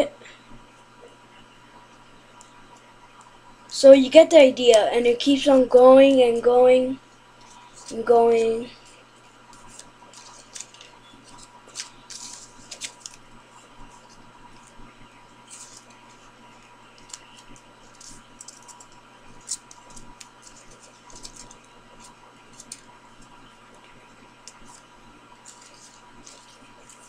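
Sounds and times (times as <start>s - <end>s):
faint steady hum: 0.0s - 27.0s
paper rustling and crinkling: 7.4s - 14.8s, 15.4s - 16.3s, 16.9s - 23.4s, 24.4s - 27.0s.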